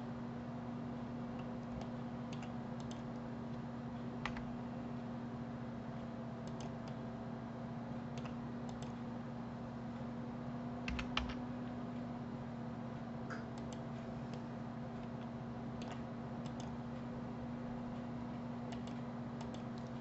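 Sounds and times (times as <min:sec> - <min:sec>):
steady low hum: 0:00.0 - 0:20.0
computer mouse and keyboard clicks: 0:01.4 - 0:03.2, 0:06.4 - 0:07.0, 0:08.2 - 0:09.0, 0:10.9 - 0:11.4, 0:13.3 - 0:16.8, 0:18.7 - 0:20.0.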